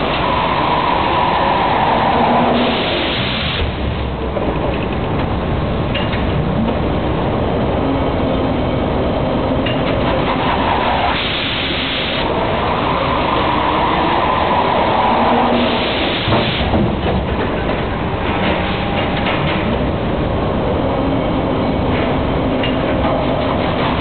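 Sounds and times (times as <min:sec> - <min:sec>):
loud machinery din: 0:00.0 - 0:07.8, 0:09.4 - 0:24.0
machine hiss: 0:11.0 - 0:12.3, 0:15.4 - 0:16.8
machine clacks: 0:16.2 - 0:19.9.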